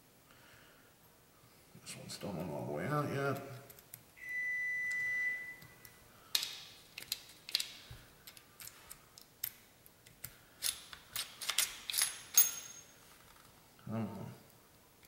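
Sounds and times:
small clicks of gun parts: 6.3s - 12.6s
allen wrench clicking and scraping: 6.3s - 12.9s.

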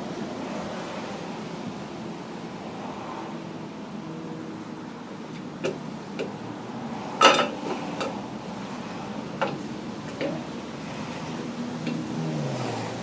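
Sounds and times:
light metallic clicks and knocks: 5.3s - 6.4s, 7.2s - 8.2s, 9.4s - 10.5s, 11.4s - 12.1s.

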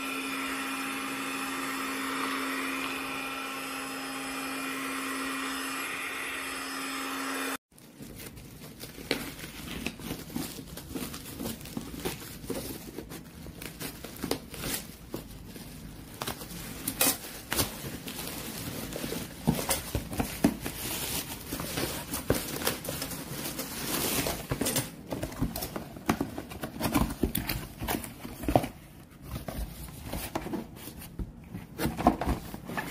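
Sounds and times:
plastic wrapping crinkling: 7.7s - 28.8s.

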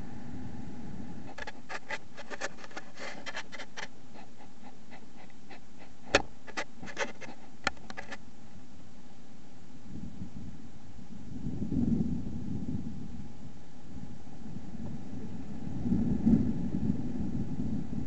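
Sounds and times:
steady hiss: 0.0s - 18.0s
sharp clicks and scratches: 1.3s - 8.2s.

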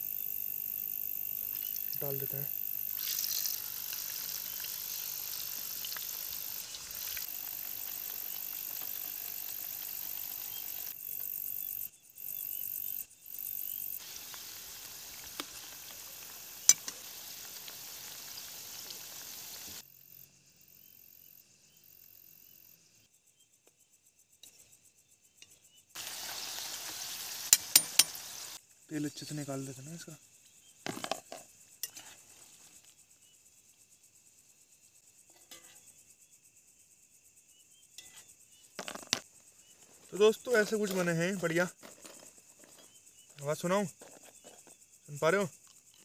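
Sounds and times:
food sizzling in hot oil: 0.0s - 11.6s, 13.3s - 19.8s, 25.9s - 28.6s.

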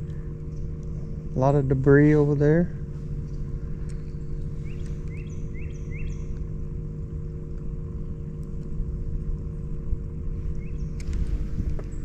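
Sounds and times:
low mechanical hum: 0.0s - 12.0s
bird rising chirps: 3.2s - 6.4s, 10.5s - 12.0s.

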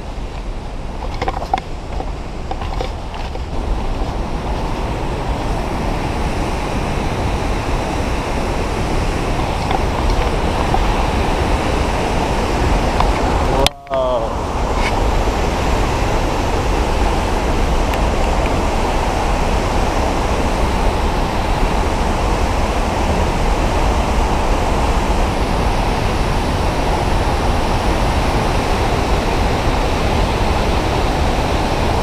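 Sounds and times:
waterfall rushing: 1.7s - 32.0s.

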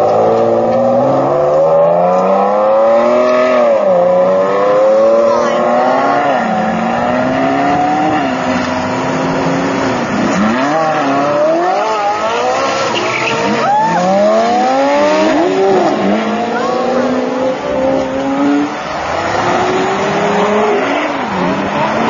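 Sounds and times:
sports car engine accelerating: 0.0s - 22.0s.

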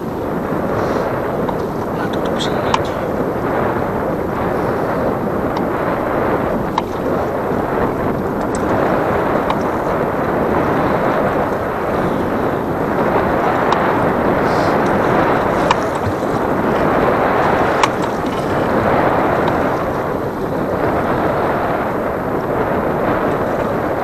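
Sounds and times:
wind buffeting microphone: 0.0s - 24.0s
sharp clicks: 8.4s - 8.8s.

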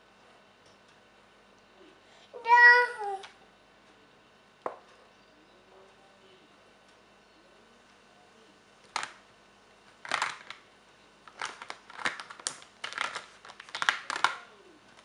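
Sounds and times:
crayons clattering in plastic tub: 10.0s - 10.6s, 11.3s - 14.5s.

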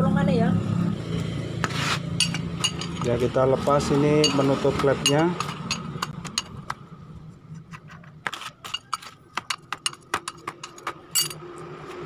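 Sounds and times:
wrench clinking on metal: 2.2s - 3.3s, 4.2s - 6.6s, 8.6s - 11.4s.

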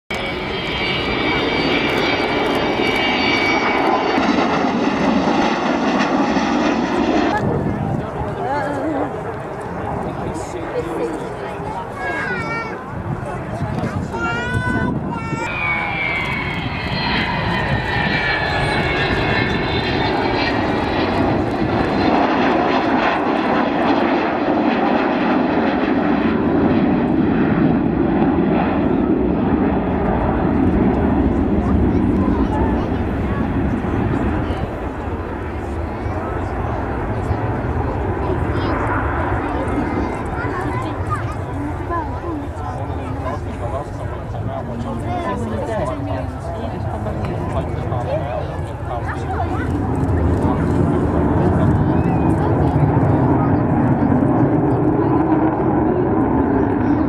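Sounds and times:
jet bomber flying past: 0.1s - 57.0s
high jet whistling: 15.2s - 21.2s.

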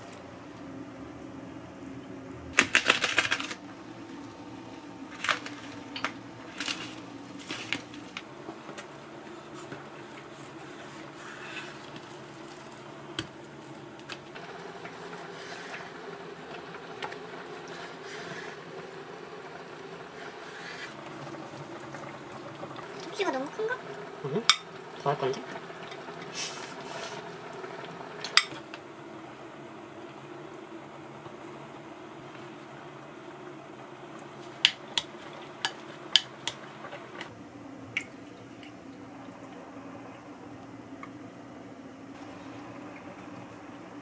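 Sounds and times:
faint steady hum: 0.0s - 44.0s.

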